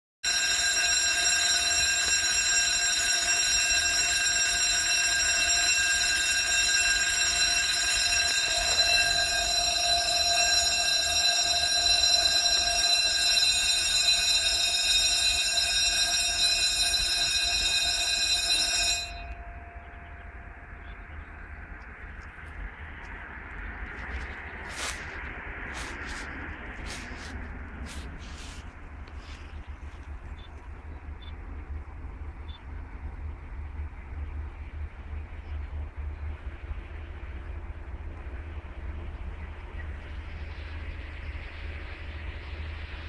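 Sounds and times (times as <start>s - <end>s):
level crossing warning alarm: 0.2s - 22.3s.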